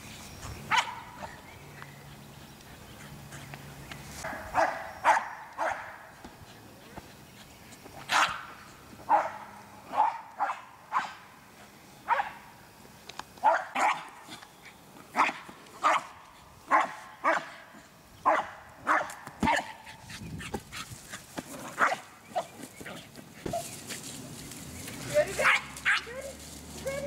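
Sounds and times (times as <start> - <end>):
dog barking high and sharp: 0.7 - 1.2, 4.2 - 6.0, 8.1 - 8.5, 9.1 - 11.2, 12.1 - 12.5, 13.4 - 14.1, 15.1 - 17.6, 18.2 - 19.9, 21.8 - 22.5, 25.4 - 26.2.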